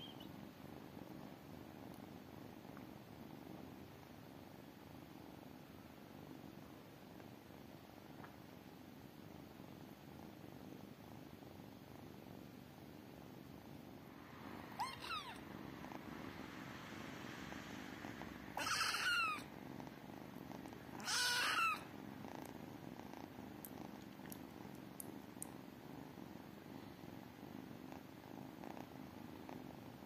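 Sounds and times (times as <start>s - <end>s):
kittens purring: 0.0s - 30.0s
high-pitched kitten calls: 14.6s - 15.4s, 18.6s - 19.5s, 21.0s - 21.9s.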